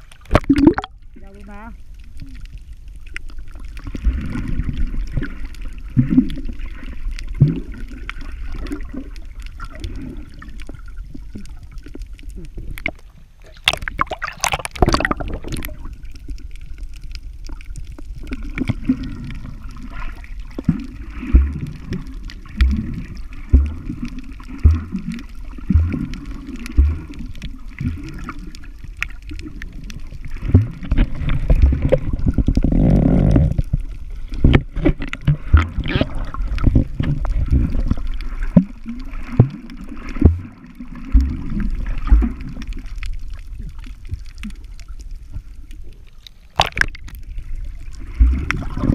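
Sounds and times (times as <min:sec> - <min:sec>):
underwater rumble and sloshing: 0:00.0 - 0:48.9
dull low thumps: 0:22.6 - 0:24.0, 0:24.6 - 0:26.1, 0:30.5 - 0:33.6.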